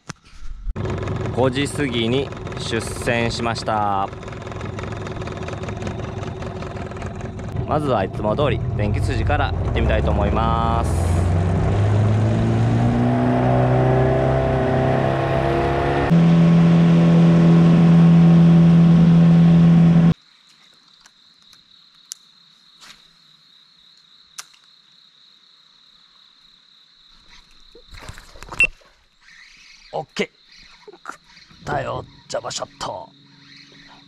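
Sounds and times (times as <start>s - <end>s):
outboard motor running: 0.8s - 12.5s, 15.8s - 20.2s, 31.3s - 34.0s
insect buzzing: 20.6s - 34.0s.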